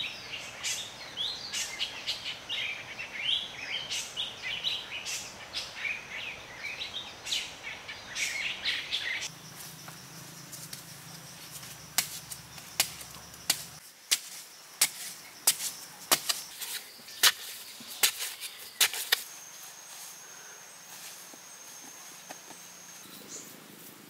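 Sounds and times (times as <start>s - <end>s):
digging blade chopping clay: 11.6s - 19.3s.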